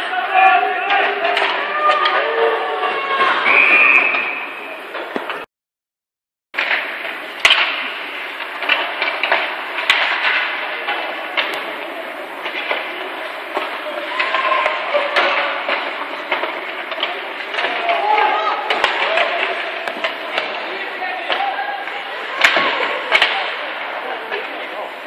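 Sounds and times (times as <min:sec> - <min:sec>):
hockey sticks and puck clacking: 0:00.0 - 0:05.5, 0:06.6 - 0:25.0
skates scraping on ice: 0:06.6 - 0:24.9
faint echoing voices: 0:07.2 - 0:25.0.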